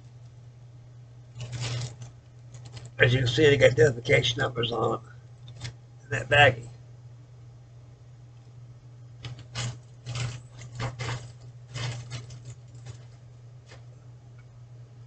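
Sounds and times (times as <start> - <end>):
plastic bag crinkling: 1.3 - 3.0, 9.2 - 13.9.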